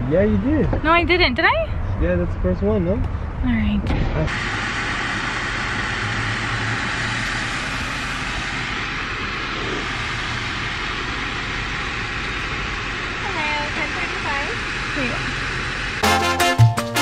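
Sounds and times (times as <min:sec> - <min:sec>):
car idling heard from inside: 0:05.8 - 0:16.0.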